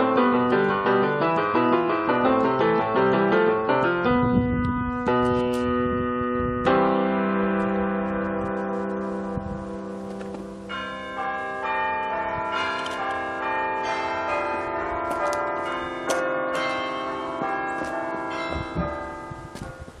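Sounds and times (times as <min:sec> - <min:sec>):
chiming bell-like melody: 0:08.6 - 0:20.0.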